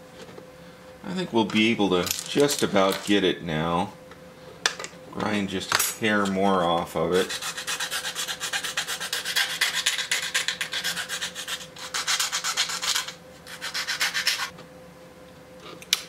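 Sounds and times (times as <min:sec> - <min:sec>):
hand file rasping on plastic: 0:07.2 - 0:14.5.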